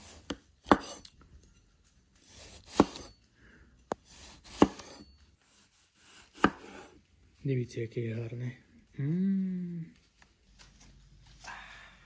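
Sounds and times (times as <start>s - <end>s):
cleaver slicing tomato: 0.0s - 1.2s, 2.2s - 3.2s, 3.9s - 7.0s.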